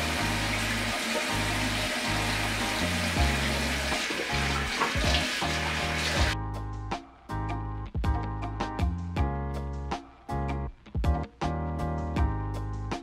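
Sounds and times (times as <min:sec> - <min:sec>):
tap water splashing into basin: 0:00.0 - 0:06.4
background music with bass: 0:00.0 - 0:13.0.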